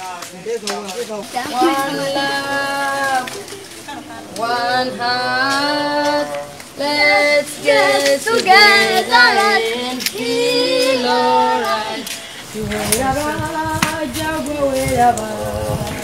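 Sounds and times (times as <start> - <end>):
high voice singing: 1.4 - 16.0.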